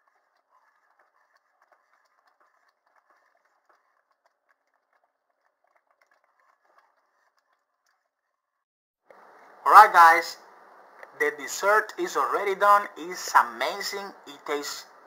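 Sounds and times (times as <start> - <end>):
whisk scraping in metal pot: 0.0 - 8.6.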